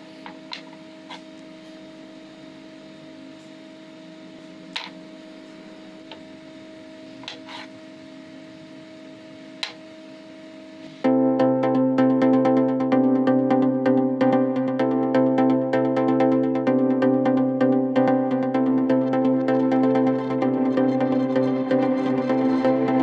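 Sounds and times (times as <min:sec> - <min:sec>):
steady low hum: 0:00.0 - 0:23.0
electronic music: 0:11.0 - 0:23.0.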